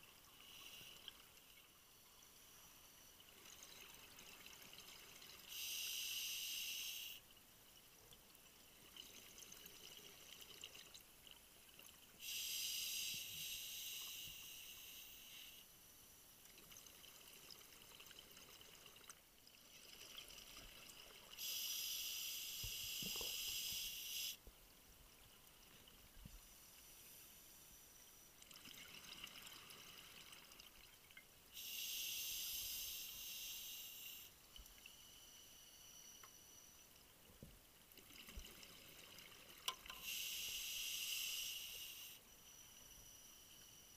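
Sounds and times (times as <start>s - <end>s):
regulator hissing breaths: 5.5s - 7.2s, 12.2s - 15.7s, 21.4s - 24.4s, 31.6s - 34.4s, 39.9s - 43.9s.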